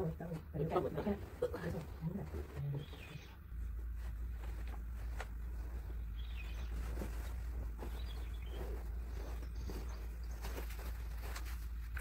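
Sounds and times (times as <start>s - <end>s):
steady low hum: 0.0s - 12.0s
towel rustling: 0.7s - 12.0s
faint bird-like chirps: 2.7s - 3.4s, 6.0s - 7.0s.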